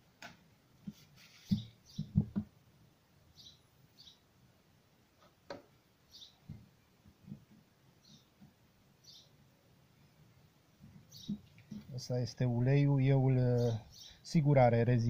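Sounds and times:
high bird chirps: 1.4 - 2.2, 6.1 - 6.4, 11.1 - 11.5
dull knocks of handling parts: 1.5 - 2.5.

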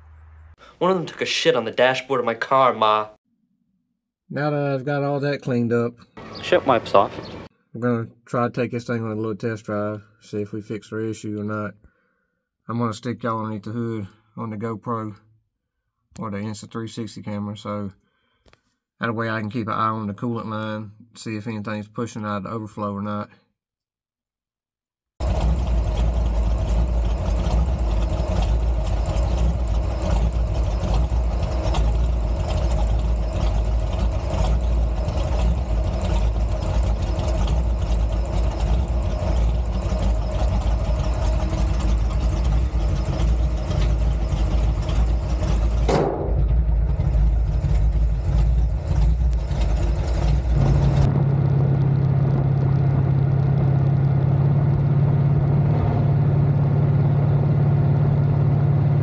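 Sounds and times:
low hum: 0.0 - 0.6, 25.2 - 59.0
engine running: 0.0 - 1.9, 6.2 - 7.5, 25.2 - 59.0.

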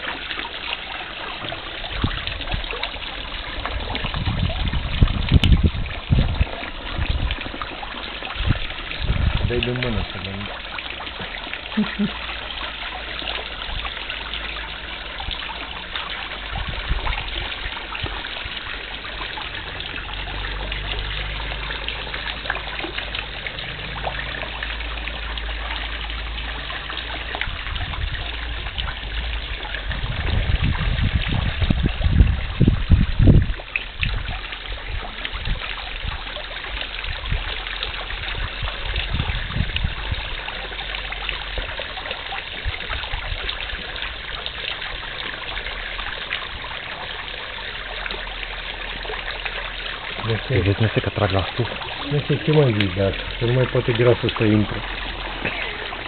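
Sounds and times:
fountain splashing into pond: 0.0 - 56.0
low rumbling: 1.5 - 12.5, 13.5 - 35.6.

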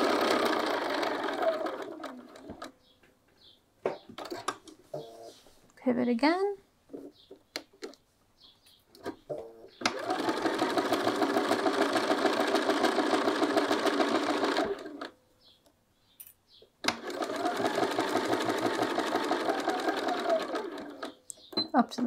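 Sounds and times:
sewing machine stitching: 0.0 - 2.7, 9.8 - 15.1, 16.8 - 21.7.

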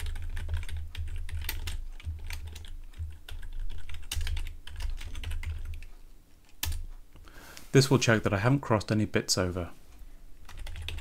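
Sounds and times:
typing on computer keyboard: 0.0 - 5.9, 6.5 - 6.9, 10.4 - 11.0.

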